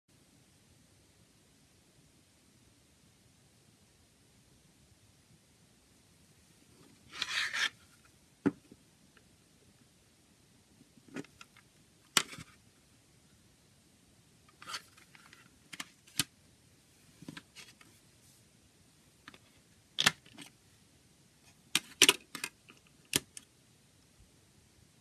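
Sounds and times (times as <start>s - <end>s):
plastic case clicking: 21.8s - 23.4s.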